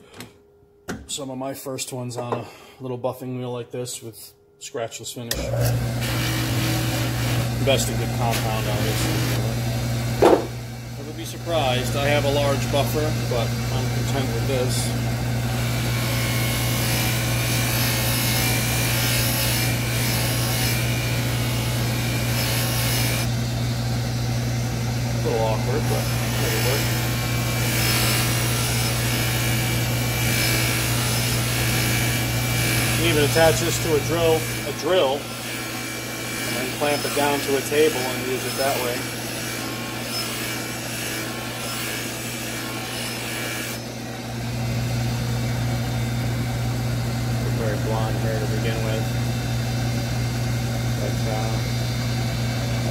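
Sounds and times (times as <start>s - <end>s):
drill press motor hum: 5.3s - 52.9s.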